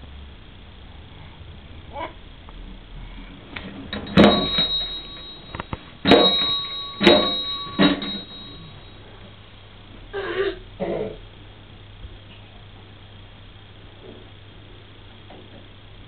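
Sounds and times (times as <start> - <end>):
toy fire engine bell clanging: 3.9 - 9.0.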